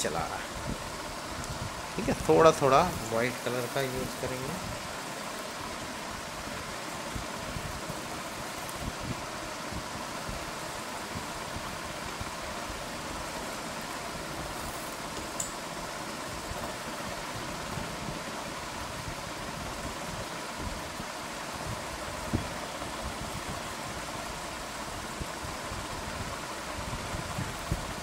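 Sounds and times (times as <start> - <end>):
background hiss and hum: 0.0 - 28.0.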